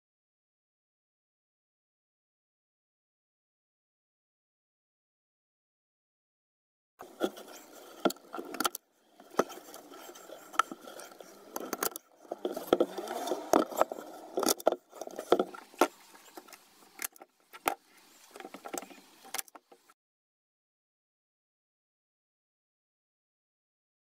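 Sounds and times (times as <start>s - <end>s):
rustling and scraping of handling: 7.0s - 20.0s.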